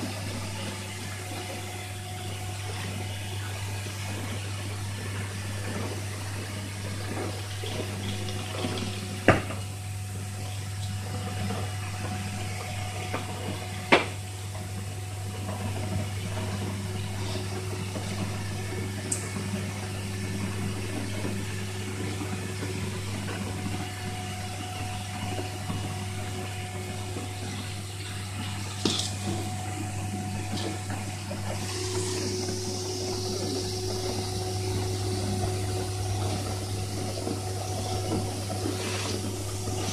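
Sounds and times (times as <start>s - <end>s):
blowing machine low hum: 0.0s - 39.9s.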